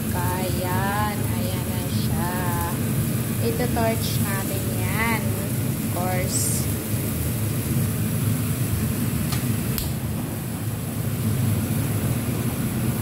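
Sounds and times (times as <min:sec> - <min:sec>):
torch flame rumble and hiss: 0:00.0 - 0:13.0.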